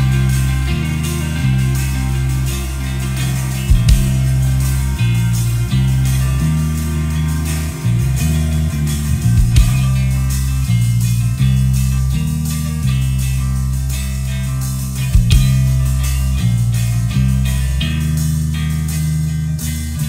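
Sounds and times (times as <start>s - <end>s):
guitar chords: 0.0s - 20.0s
heavy bass line: 0.0s - 20.0s
rock band music: 0.0s - 20.0s.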